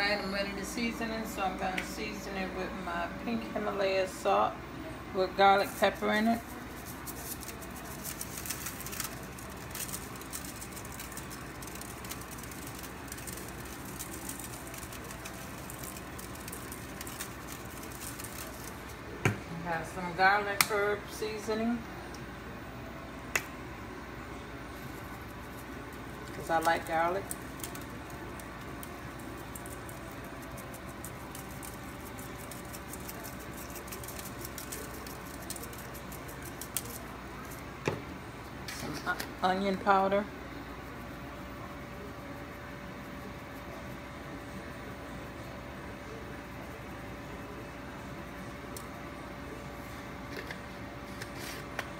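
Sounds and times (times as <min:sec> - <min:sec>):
low background hum: 0:00.0 - 0:51.9
seasoning shaker ticking: 0:05.6 - 0:19.2, 0:24.8 - 0:37.7.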